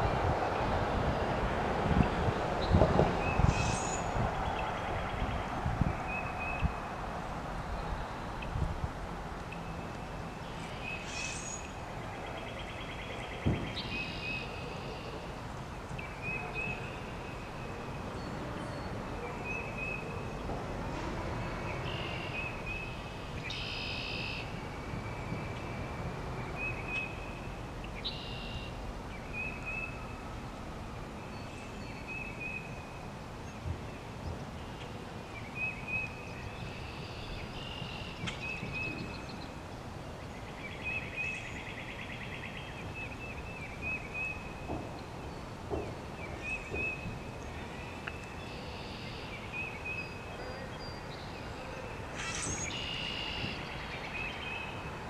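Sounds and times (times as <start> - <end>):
steady background hiss: 0.0 - 55.0
birds chirping: 33.4 - 55.0
bird repeating short high call: 52.2 - 53.5.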